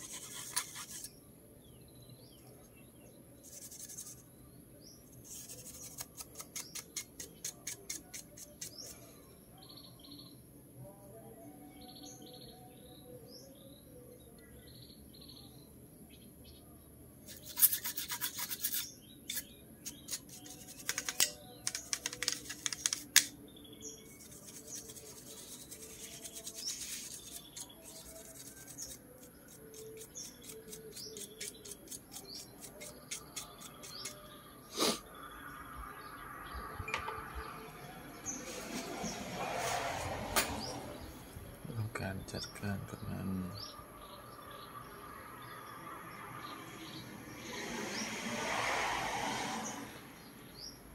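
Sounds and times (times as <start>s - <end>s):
brush scrubbing circuit board: 0.0s - 1.1s, 3.5s - 4.2s, 5.2s - 8.9s, 17.3s - 23.3s, 24.2s - 34.2s.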